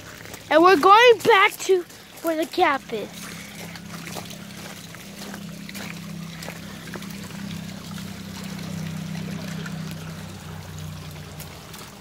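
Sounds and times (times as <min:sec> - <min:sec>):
water trickling and splashing: 0:00.0 - 0:12.0
steady low hum: 0:01.8 - 0:12.0.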